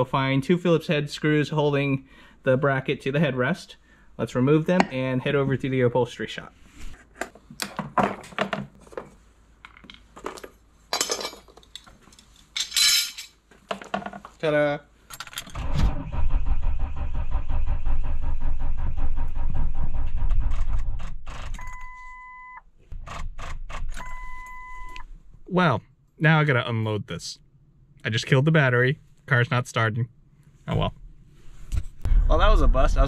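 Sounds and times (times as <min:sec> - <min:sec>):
starter motor chattering: 0:15.6 - 0:21.1
electronic warning chime: 0:21.6 - 0:22.6, 0:24.0 - 0:25.0.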